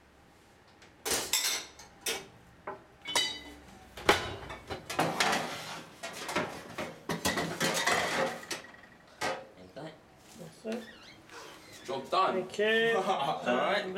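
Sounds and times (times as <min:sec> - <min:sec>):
pots and pans clattering: 0:01.0 - 0:02.3, 0:03.1 - 0:09.5.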